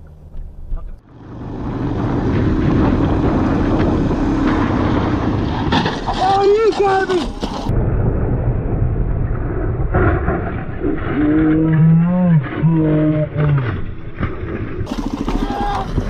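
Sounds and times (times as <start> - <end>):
engine rumble: 0.0 - 16.0
wind noise: 1.3 - 12.6.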